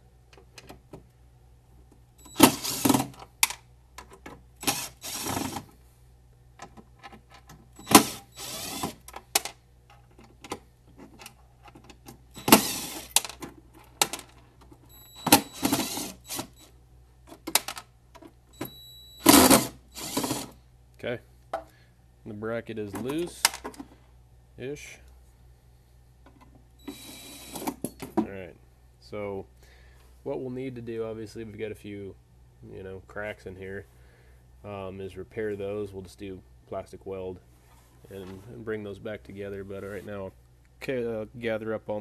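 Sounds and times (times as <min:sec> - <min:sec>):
cordless impact driver running: 0:02.4 - 0:03.1, 0:04.6 - 0:05.6, 0:07.8 - 0:09.0, 0:12.4 - 0:13.2, 0:15.4 - 0:16.6, 0:19.2 - 0:20.6.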